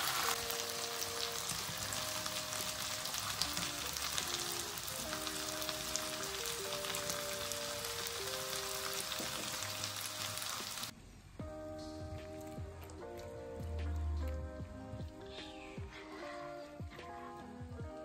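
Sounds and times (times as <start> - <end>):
meat sizzling in hot oil: 0.0 - 10.9
soft background music: 0.0 - 18.0.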